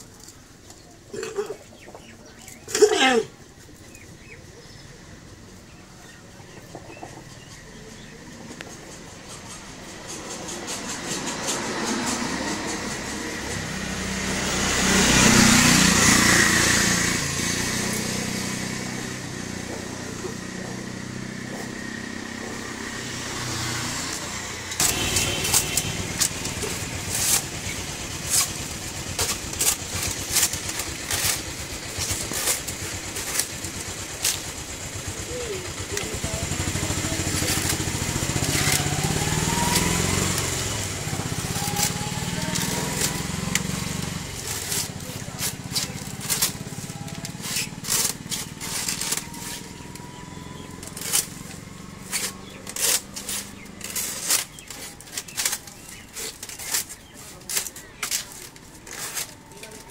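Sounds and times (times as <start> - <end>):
low engine hum: 3.5 - 56.4
bamboo strips snapping and cracking: 24.1 - 35.0, 37.3 - 59.9.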